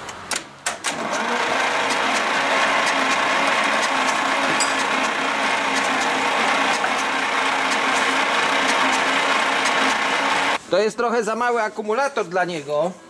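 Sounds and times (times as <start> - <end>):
starter cranking diesel engine: 0.9 - 10.6.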